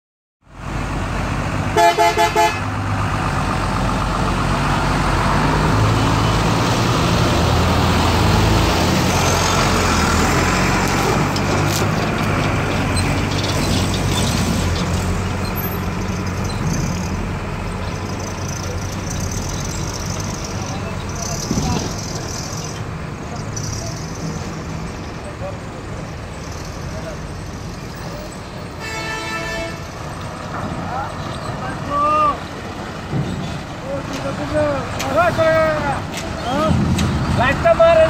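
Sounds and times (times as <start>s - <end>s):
bus engines rumbling: 0.4s - 38.0s
coach horn blasts: 1.8s - 2.7s, 28.8s - 29.9s.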